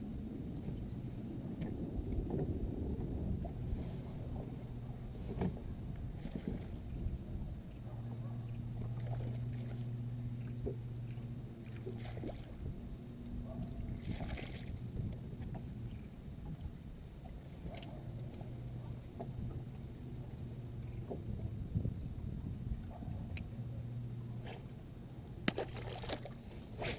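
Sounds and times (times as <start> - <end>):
electric trolling motor humming: 0.0 - 14.0
water washing against boat hull: 1.5 - 12.8, 13.4 - 16.7.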